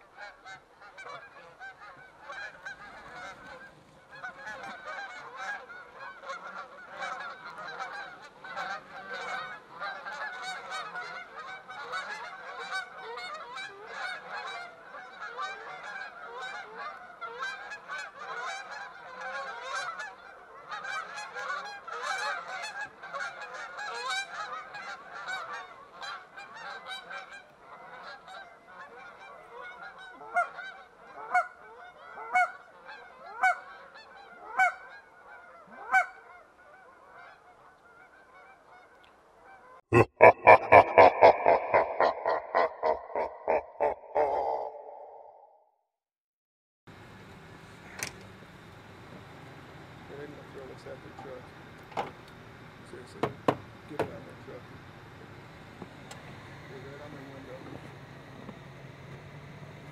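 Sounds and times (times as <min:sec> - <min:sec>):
geese honking and clucking: 0:00.0 - 0:45.6.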